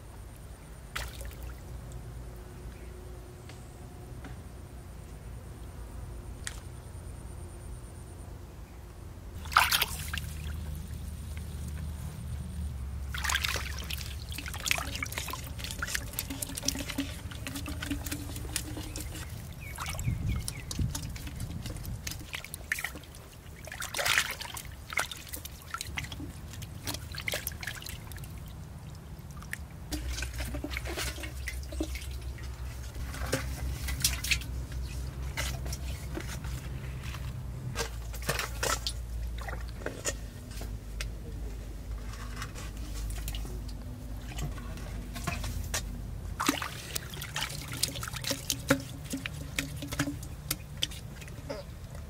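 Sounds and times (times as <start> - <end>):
water drips and splashes: 0.9 - 2.0, 9.4 - 12.0, 13.0 - 36.4, 37.7 - 40.2, 42.8 - 52.0
water trickling from a pipe: 9.4 - 41.0, 42.0 - 52.0.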